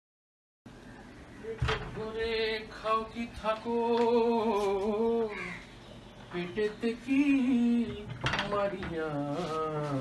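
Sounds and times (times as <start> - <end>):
man singing: 1.4 - 5.6, 6.3 - 10.0.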